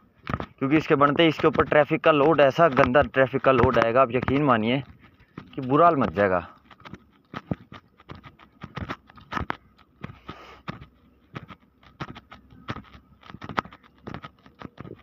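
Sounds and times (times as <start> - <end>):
footsteps on gritty concrete: 0.2 - 15.0.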